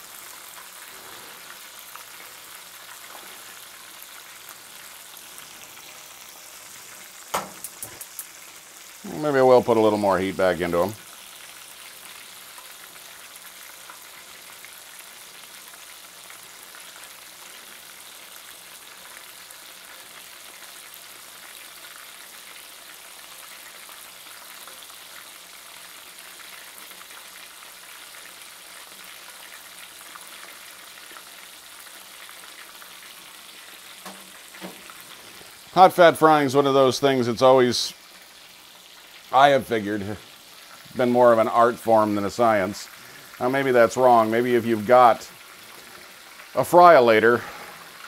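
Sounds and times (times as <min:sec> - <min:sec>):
deep-frying sizzle with crackling: 0:00.0 - 0:48.0.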